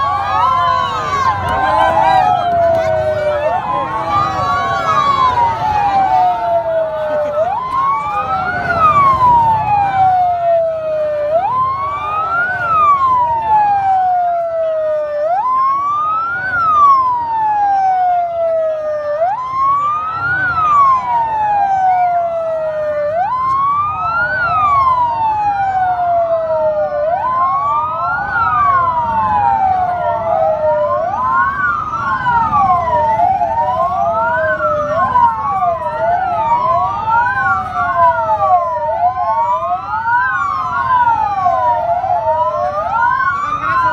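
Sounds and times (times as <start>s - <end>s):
ambulance siren wailing: 0.0s - 43.9s
second siren: 0.0s - 43.9s.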